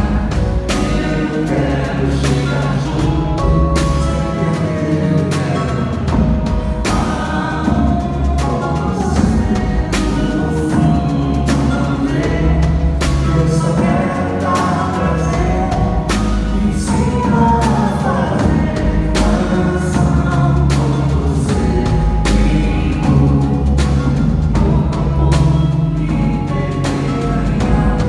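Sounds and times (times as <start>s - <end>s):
drum strikes: 0.0s - 4.6s
bass and chordal backing: 0.0s - 28.0s
person singing: 0.0s - 28.0s.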